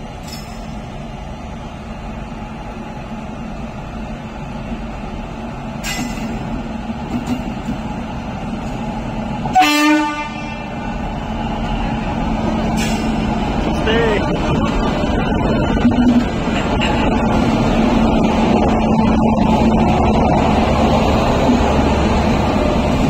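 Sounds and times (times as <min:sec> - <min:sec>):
train rumbling: 0:00.0 - 0:23.0
train horn blast: 0:09.5 - 0:10.8.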